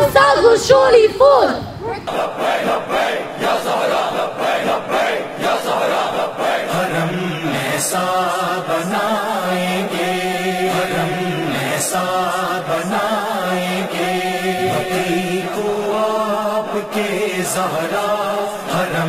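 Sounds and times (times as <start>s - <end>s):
voices chanting religious chant: 0.0s - 19.0s.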